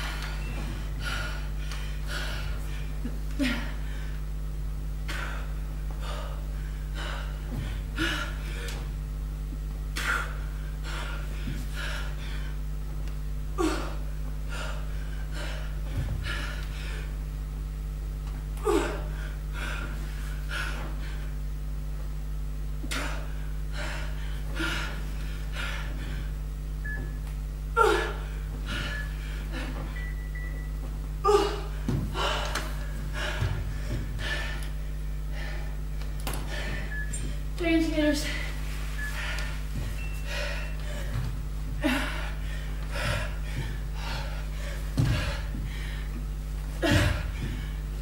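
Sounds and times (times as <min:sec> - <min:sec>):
steady electrical hum: 0:00.0 - 0:48.0
woman breathing hard and gasping: 0:05.1 - 0:08.9, 0:22.9 - 0:26.4, 0:31.2 - 0:37.5, 0:38.2 - 0:46.2.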